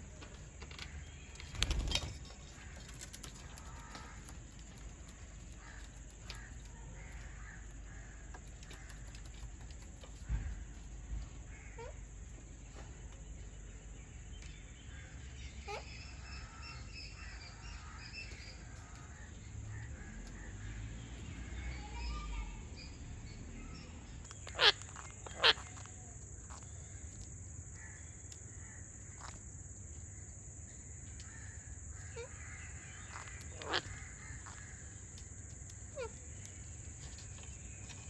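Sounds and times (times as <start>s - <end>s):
parakeet screeching: 24.4s - 25.8s.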